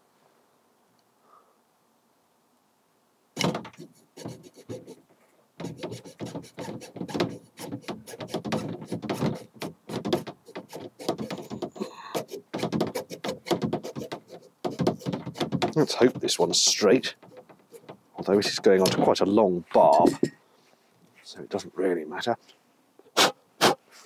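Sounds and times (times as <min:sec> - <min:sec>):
hacksaw sawing plastic hose: 0:03.4 - 0:05.0, 0:05.6 - 0:19.2.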